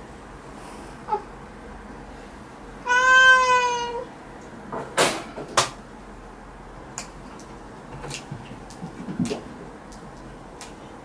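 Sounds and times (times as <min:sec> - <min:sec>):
cat meowing: 0:02.8 - 0:04.1.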